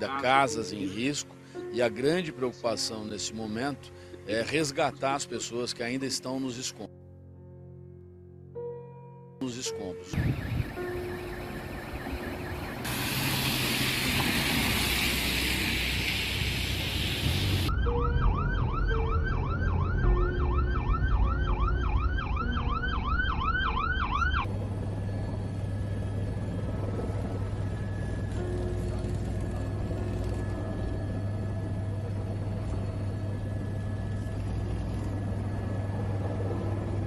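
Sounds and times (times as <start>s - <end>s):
emergency vehicle siren wailing: 10.1s - 37.0s
loud rushing hiss: 12.8s - 17.7s.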